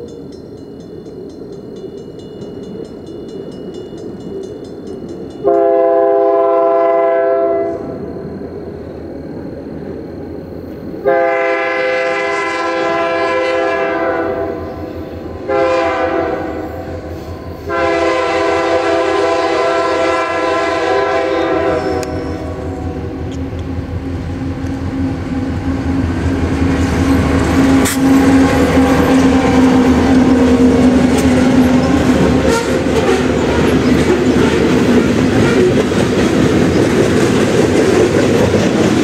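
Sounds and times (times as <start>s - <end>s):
locomotive air horn: 5.4s - 7.9s, 11.0s - 17.1s, 17.7s - 23.0s, 32.4s - 33.8s
locomotive rumble: 16.7s - 39.0s.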